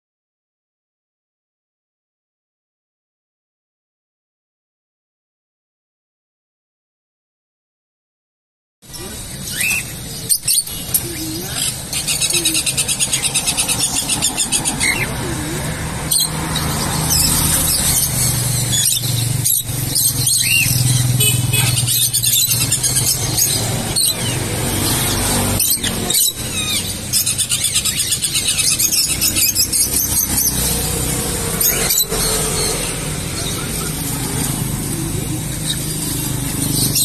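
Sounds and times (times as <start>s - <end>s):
lovebirds squealing and chirping: 8.9s - 37.0s.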